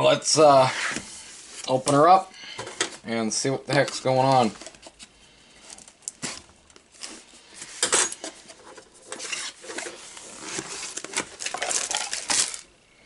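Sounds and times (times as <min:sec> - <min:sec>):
cardboard sliding and rustling: 0:00.5 - 0:02.0, 0:06.2 - 0:11.4.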